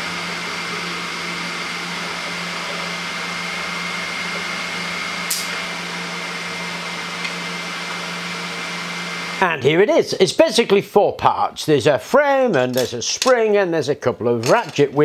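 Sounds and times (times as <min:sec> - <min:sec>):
printer fans hissing and humming: 0:00.0 - 0:09.6.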